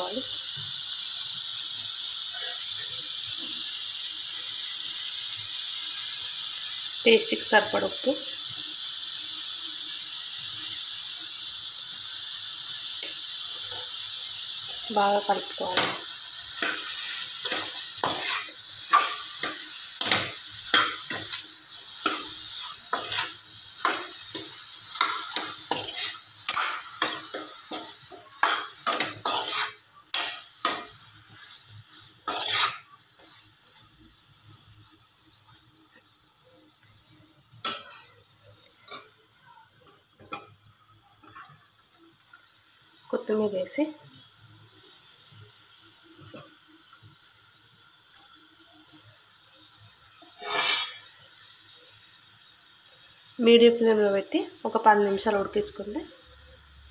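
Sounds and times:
vegetables sizzling in oil: 0.0 - 56.9
spatula scraping and knocking pan: 15.0 - 33.4, 50.3 - 51.1.

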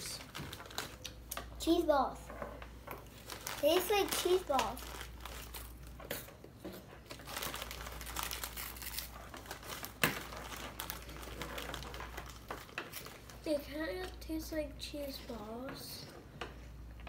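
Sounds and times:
snack bag crinkling: 0.0 - 1.3, 3.1 - 6.0, 7.1 - 13.5.

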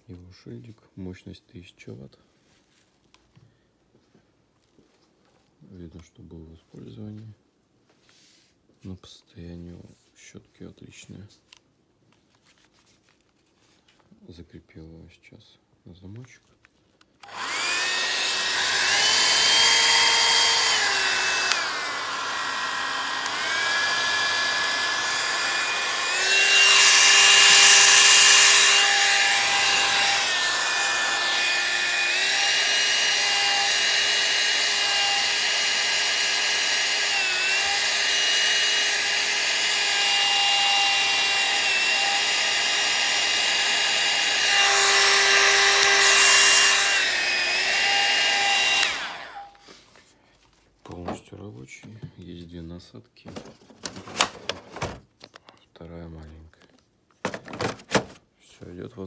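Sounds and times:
hot-air brush motor whine: 17.2 - 49.6.

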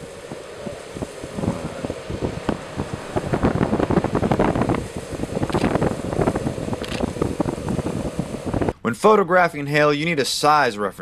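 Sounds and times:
gusty wind buffeting microphone: 0.0 - 8.8
faint steady hum: 0.0 - 8.9.

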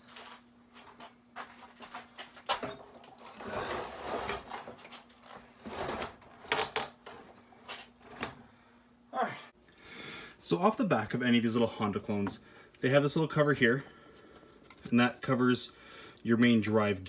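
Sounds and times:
scraping on workbench: 3.4 - 5.0, 5.6 - 6.6.

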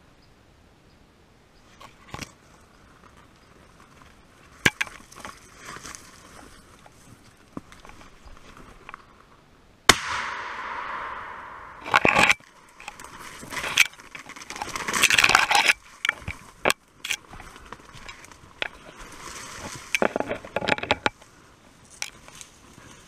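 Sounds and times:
footsteps through dry undergrowth: 1.7 - 9.4, 11.2 - 23.0
rifle shot: 9.9 - 12.4.

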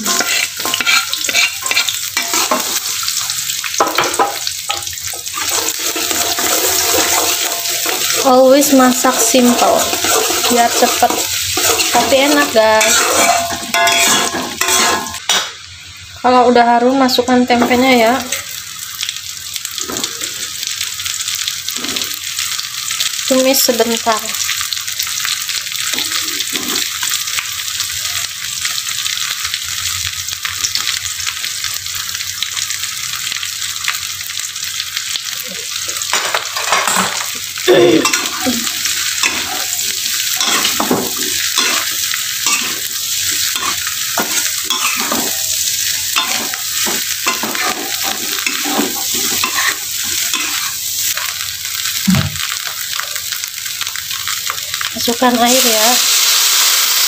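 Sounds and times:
metal spatula scraping a wok: 0.0 - 3.0, 4.7 - 15.4, 36.6 - 51.3
food sizzling in oil: 0.0 - 57.0.

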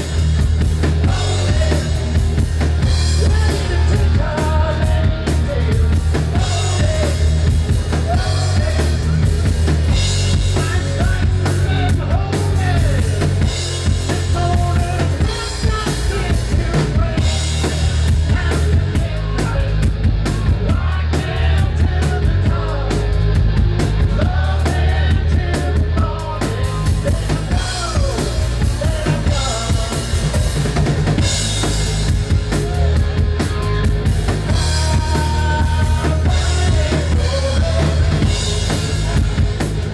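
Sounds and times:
bass guitar: 0.0 - 39.9
drum kit beat: 0.0 - 39.9
electric guitars: 0.0 - 39.9.

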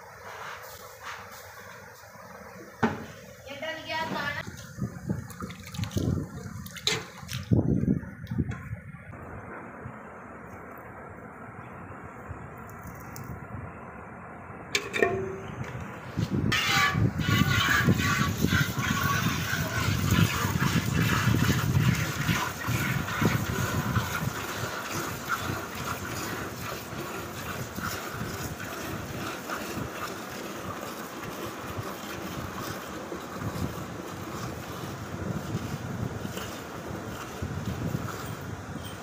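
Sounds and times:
milk squirting into steel bucket: 4.4 - 7.5, 16.6 - 37.5.

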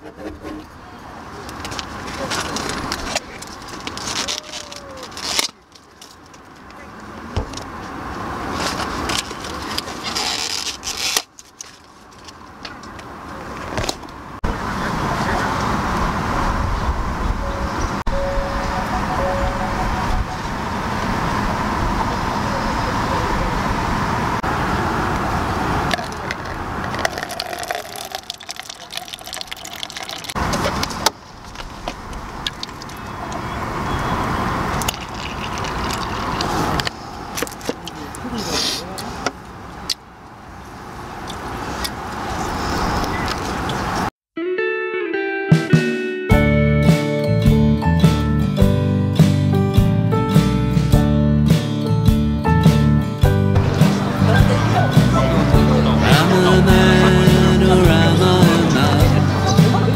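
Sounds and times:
outdoor rumble and hiss: 0.0 - 44.1
water pouring into paper cup: 26.0 - 30.4, 34.8 - 36.8.

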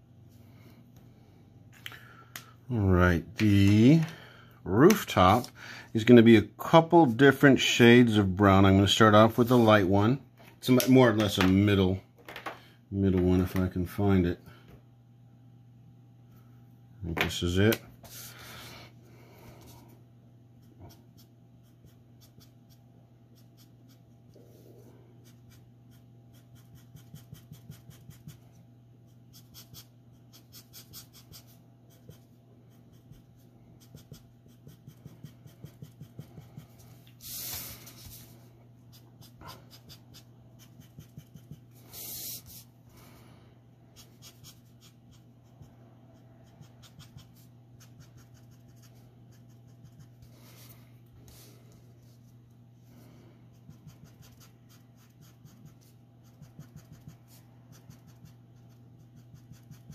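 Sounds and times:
marker scratching on paper: 25.2 - 28.5, 29.1 - 38.2, 38.9 - 42.6, 44.0 - 50.3, 53.5 - 59.9.

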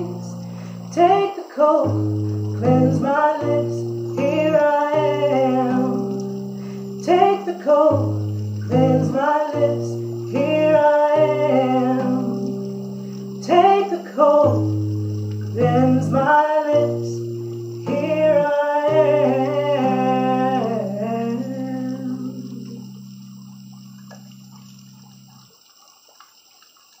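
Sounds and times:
woman singing: 0.0 - 6.4, 7.0 - 12.8, 13.4 - 14.8, 15.5 - 23.0.

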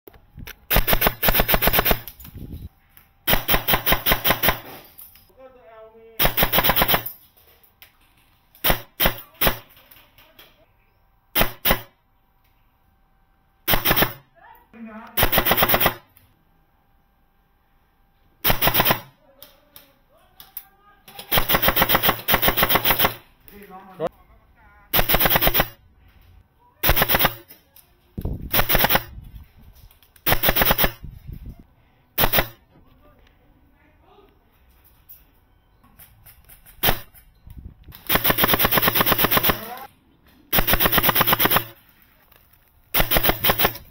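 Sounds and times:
rapid automatic gunfire bursts: 0.7 - 2.1, 3.3 - 4.7, 6.2 - 7.1, 11.4 - 11.9, 13.7 - 14.2, 15.2 - 16.0, 18.4 - 19.1, 21.3 - 23.2, 25.0 - 25.8, 26.8 - 27.5, 28.5 - 29.1, 30.3 - 31.0, 32.2 - 32.6, 38.1 - 39.9, 40.5 - 41.8, 43.0 - 43.9
paintball markers firing: 8.6 - 9.9, 11.4 - 11.9, 15.2 - 16.2, 21.1 - 23.3, 25.0 - 25.8, 28.5 - 29.1, 30.2 - 31.0, 32.2 - 32.6, 36.6 - 37.2, 38.0 - 39.9, 40.5 - 41.8, 43.0 - 43.9.

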